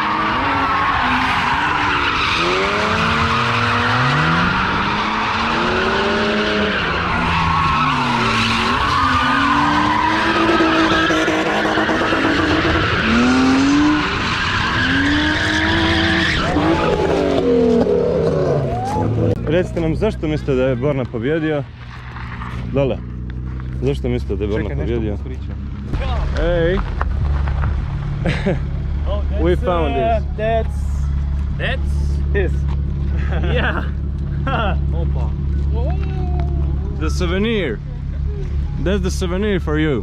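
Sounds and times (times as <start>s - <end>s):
tyres screeching: 0.0s - 19.4s
car engines revving: 0.0s - 40.0s.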